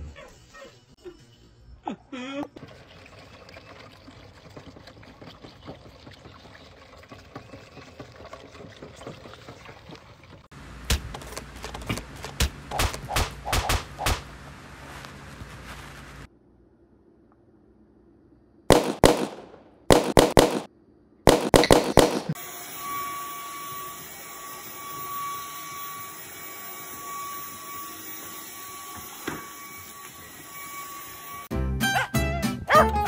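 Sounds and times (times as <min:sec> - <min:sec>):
sharp loud bangs: 0:12.4 - 0:14.3, 0:18.7 - 0:20.7, 0:21.3 - 0:22.4
dog barking: 0:31.9 - 0:33.0.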